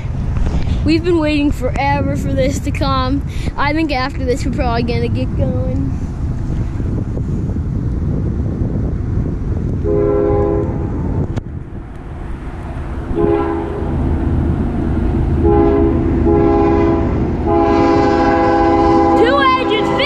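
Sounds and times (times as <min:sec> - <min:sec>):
low rumble: 0:00.0 - 0:20.0
locomotive air horn blasts: 0:09.8 - 0:10.9, 0:13.1 - 0:13.9, 0:15.4 - 0:20.0.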